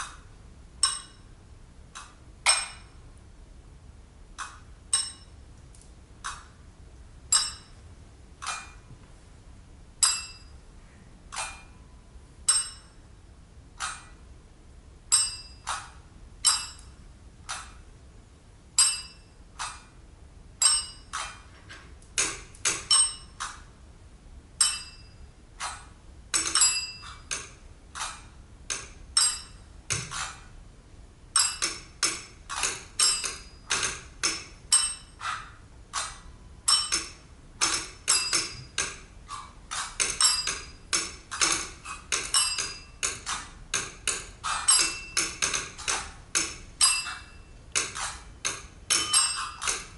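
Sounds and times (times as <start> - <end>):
clinks and taps on tabletop: 10.0 - 10.5, 24.6 - 25.0, 26.4 - 30.3, 31.4 - 35.4, 36.7 - 39.0, 39.8 - 49.9.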